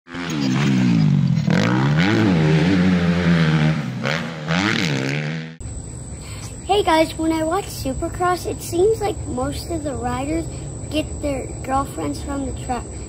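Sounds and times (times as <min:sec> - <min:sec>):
dirt bike engine revving: 0:00.1 - 0:05.6.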